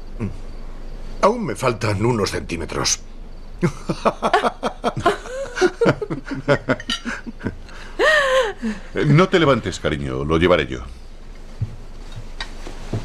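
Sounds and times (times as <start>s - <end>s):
drawn-out vocal sound: 0.0s - 0.5s
people laughing: 3.6s - 9.6s.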